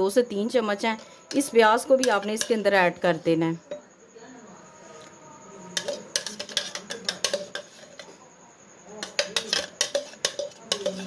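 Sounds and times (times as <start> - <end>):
metal spoon clinking on ceramic: 1.3 - 2.7, 5.7 - 8.1, 9.0 - 11.0.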